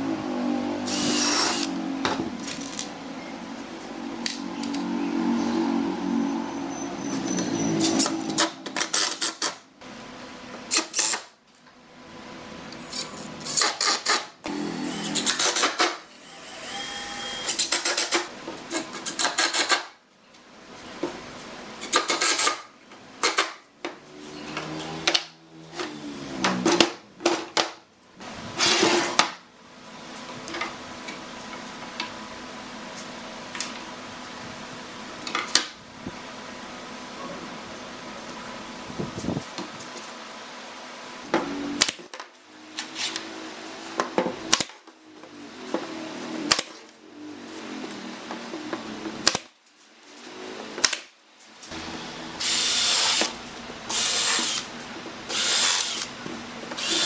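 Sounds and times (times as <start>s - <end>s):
drill and impact driver bursts: 0.9s - 1.8s, 13.4s - 18.2s, 51.8s - 54.7s, 55.3s - 56.1s, 56.8s - 57.0s.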